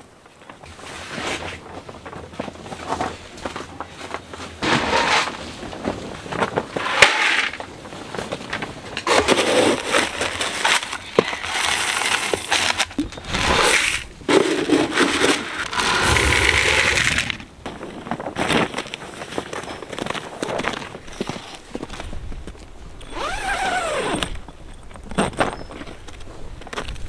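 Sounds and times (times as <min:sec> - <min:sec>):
grain pouring into plastic bucket: 0:11.2 - 0:12.7, 0:15.6 - 0:17.4.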